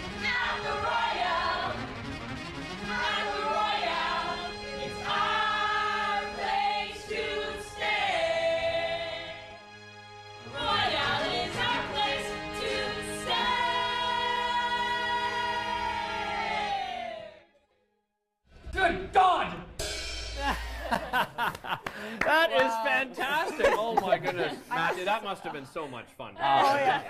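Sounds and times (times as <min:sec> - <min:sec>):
musical accompaniment: 0:00.0 - 0:17.2.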